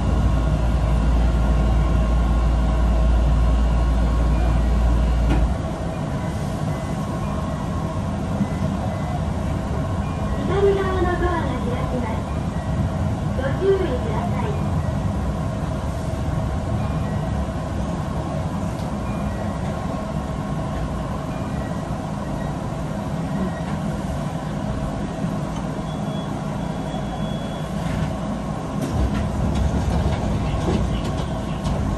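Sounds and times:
electric train rumbling: 0.0 - 31.9
train clicks: 28.8 - 31.9.

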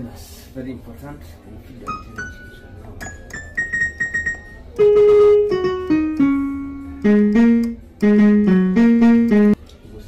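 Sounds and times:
keyboard music: 1.9 - 9.6.

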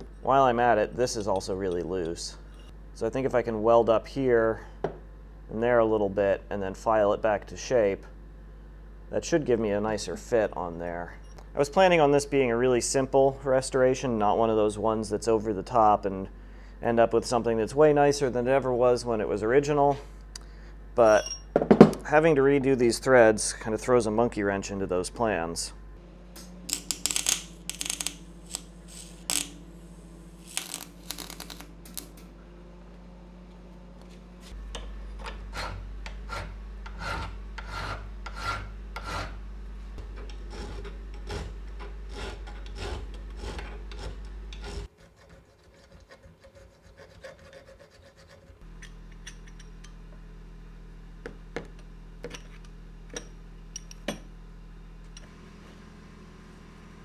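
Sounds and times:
welding crackle: 26.7 - 32.2
file scraping on steel: 35.2 - 39.4, 40.1 - 48.7.

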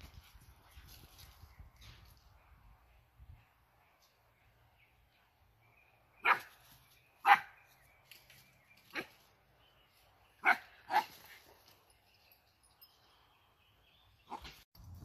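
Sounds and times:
dog barking: 6.2 - 6.5, 7.2 - 7.5, 10.4 - 11.1.

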